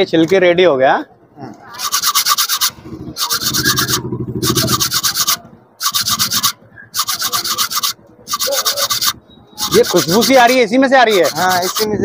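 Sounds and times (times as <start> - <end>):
seed scrubbed with bristle brush: 4.7 - 12.0.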